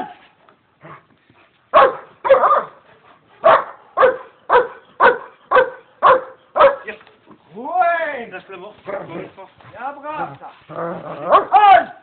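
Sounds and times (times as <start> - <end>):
dog barking: 1.7 - 2.8, 3.4 - 6.9, 11.3 - 11.6.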